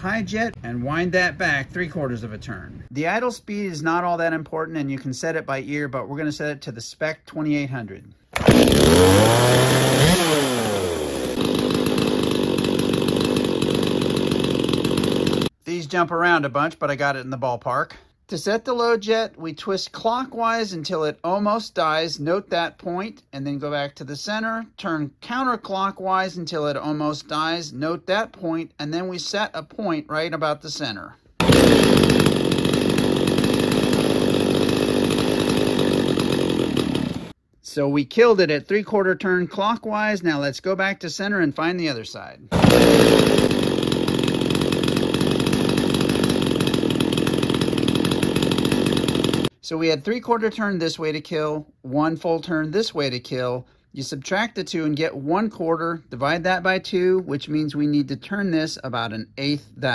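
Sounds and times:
chainsaw engine idling: 0:08.4 - 0:15.5, 0:31.4 - 0:37.4, 0:42.5 - 0:49.5.

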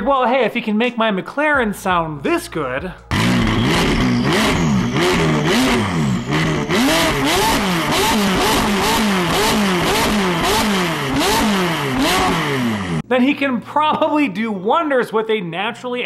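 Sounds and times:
car engine revving: 0:03.1 - 0:13.0
exhaust crackles: 0:03.1 - 0:13.0.

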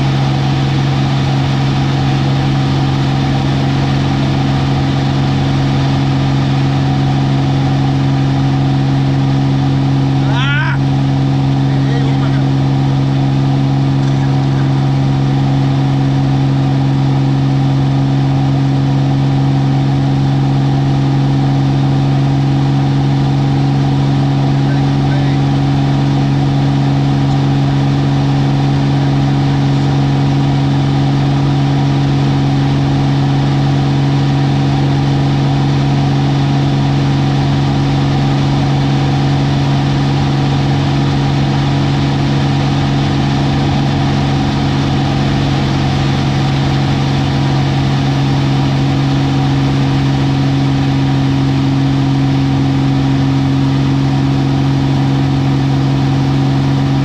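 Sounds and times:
propeller plane engine drone: 0:00.0 - 0:57.0
air noise over canopy: 0:10.1 - 0:12.8.

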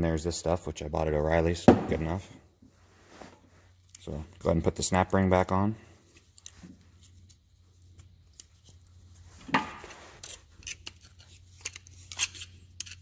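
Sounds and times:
small metal clicks and scrapes: 0:06.1 - 0:09.2, 0:10.1 - 0:13.0.

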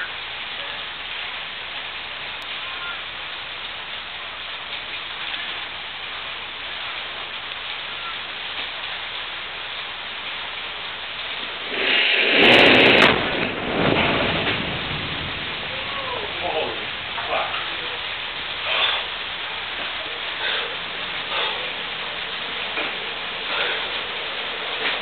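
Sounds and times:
rain hissing on microphone: 0:00.0 - 0:25.0
rocket motor exploding: 0:11.5 - 0:15.7.

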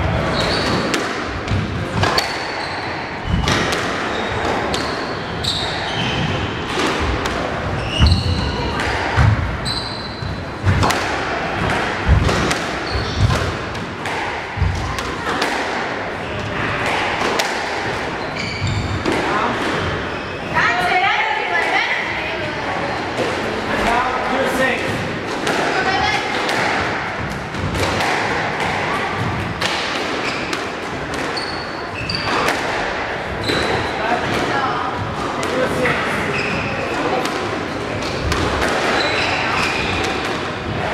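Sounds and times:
squash ball thudding: 0:00.4 - 0:16.0, 0:16.7 - 0:20.1, 0:25.0 - 0:36.0, 0:36.9 - 0:40.9
shoes squeaking on wooden floor: 0:02.5 - 0:06.6, 0:07.7 - 0:08.8, 0:09.6 - 0:10.6, 0:12.8 - 0:13.4, 0:18.2 - 0:19.5, 0:31.2 - 0:32.5, 0:36.2 - 0:37.1, 0:38.9 - 0:40.1
thuds on squash court: 0:06.0 - 0:15.9.

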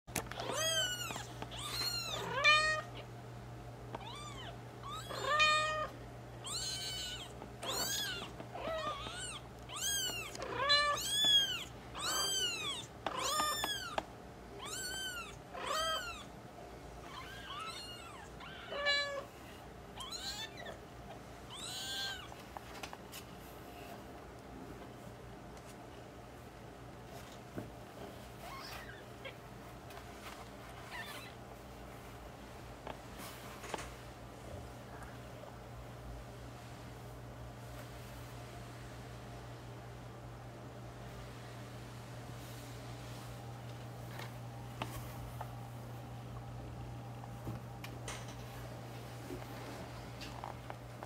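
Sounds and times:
kittens mewing: 0:00.3 - 0:03.1, 0:03.9 - 0:14.0, 0:14.6 - 0:16.3.

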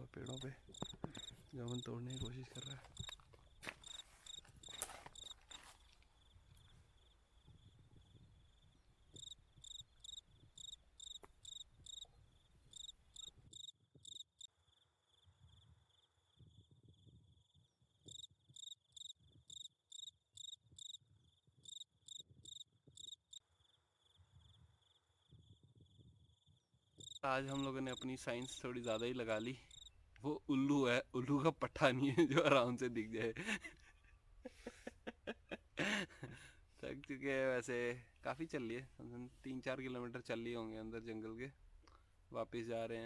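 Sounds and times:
insect chirping: 0:00.2 - 0:30.0.

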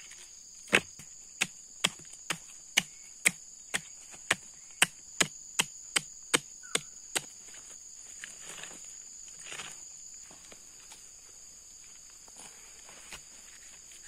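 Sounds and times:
pick mattock chopping soil: 0:00.6 - 0:07.3.

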